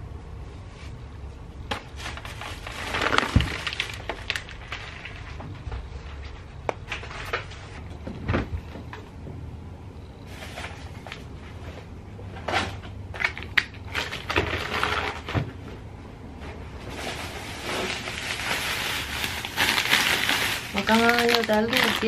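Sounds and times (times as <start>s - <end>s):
plastic bags rustling: 1.6s - 8.7s, 10.2s - 22.0s
items knocking and clattering: 1.7s - 9.5s, 12.3s - 15.8s.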